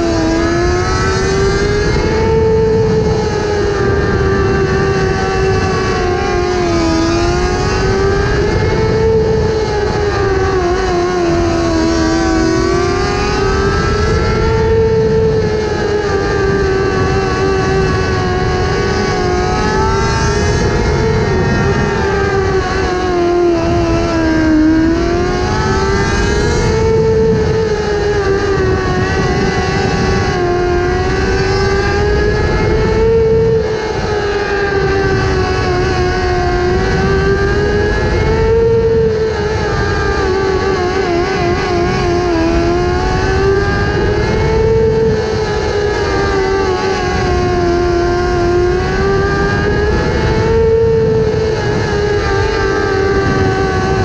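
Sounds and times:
motorcycle engine at high revs: 0:00.0 - 0:54.0
wind and dirt rushing: 0:00.0 - 0:54.0.

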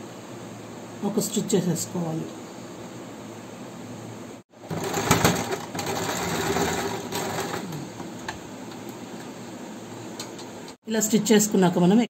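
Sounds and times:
electric sewing machine stitching: 0:04.6 - 0:08.3.

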